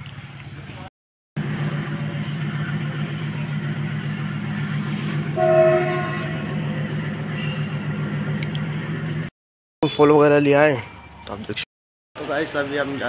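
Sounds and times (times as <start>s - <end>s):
engine drone: 0.0s - 9.3s
horn: 5.4s - 6.6s.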